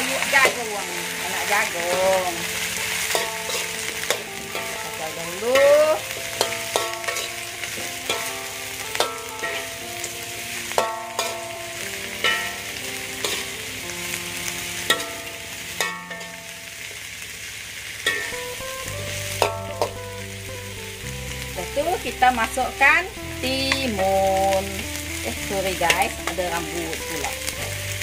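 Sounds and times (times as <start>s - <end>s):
corn sizzling in hot oil: 0.0s - 28.0s
metal spatula scraping a wok: 0.1s - 17.2s, 18.0s - 20.6s.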